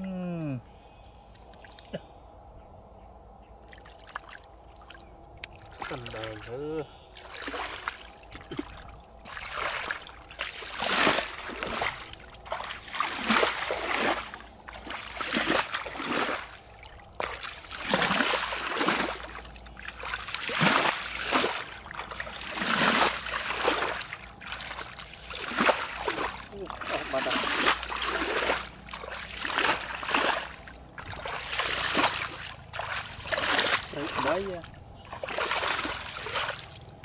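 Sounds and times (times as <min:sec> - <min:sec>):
bare feet splashing through mud: 0:03.7 - 0:37.0.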